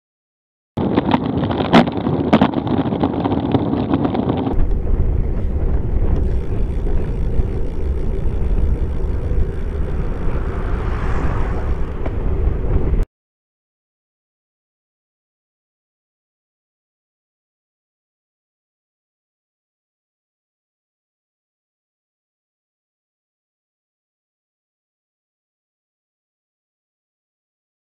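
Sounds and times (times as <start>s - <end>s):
wind and road rumble: 0.8s - 13.1s.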